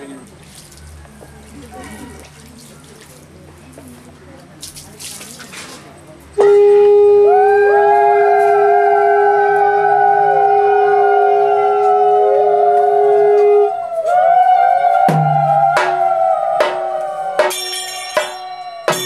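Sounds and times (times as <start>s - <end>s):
conch shell blown: 6.4s - 13.9s
sharp strikes: 15.1s - 19.0s.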